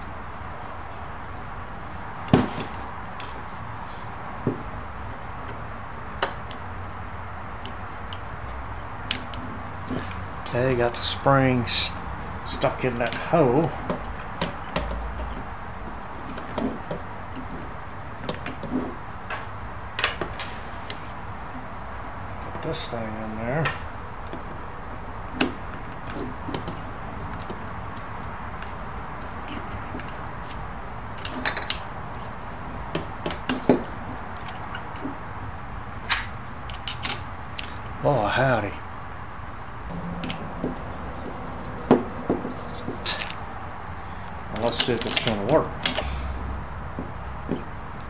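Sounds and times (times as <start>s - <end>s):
light clicks and taps of parts: 7.6s - 10.6s, 25.3s - 32.3s, 36.0s - 38.0s, 44.5s - 48.0s
steady low hum: 33.8s - 48.0s
metal and plastic parts clicking: 36.0s - 37.8s, 42.7s - 43.4s, 44.6s - 46.1s.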